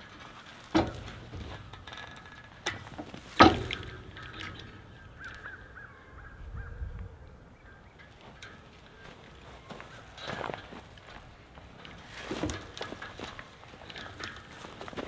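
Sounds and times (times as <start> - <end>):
metallic knock on wire fence: 0.7 - 5.8
crows cawing: 4.1 - 6.9.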